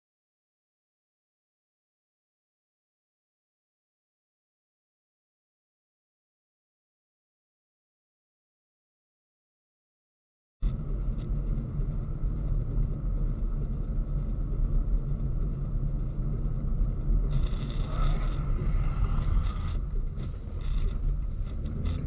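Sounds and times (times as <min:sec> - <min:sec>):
car road and engine rumble: 0:10.6 - 0:22.0.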